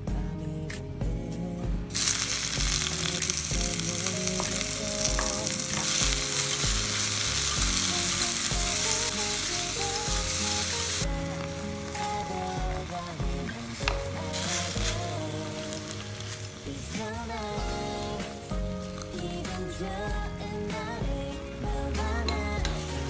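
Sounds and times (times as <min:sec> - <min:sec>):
soft background music: 0:00.0 - 0:23.0
food sizzling in hot oil: 0:01.9 - 0:23.0
wooden chopsticks stirring: 0:02.0 - 0:16.9.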